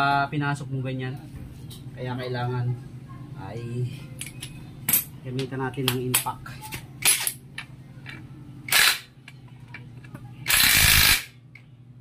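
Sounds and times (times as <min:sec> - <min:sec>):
cordless impact wrench running: 0:08.7 - 0:09.1, 0:10.5 - 0:11.3.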